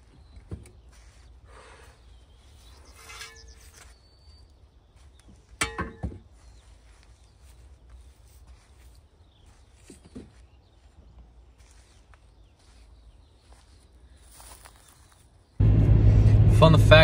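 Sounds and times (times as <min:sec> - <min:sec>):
metal bucket clanking: 0:05.6 - 0:06.2
tools knocking and rattling: 0:05.6 - 0:06.2.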